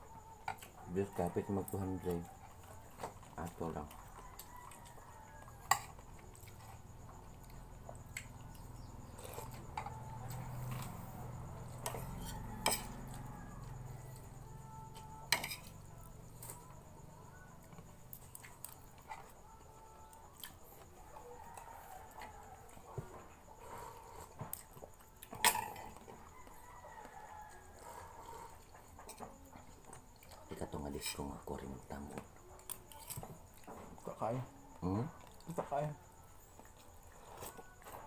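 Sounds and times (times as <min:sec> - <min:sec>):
spoon clinking and scraping on plate: 0:15.3 - 0:15.8.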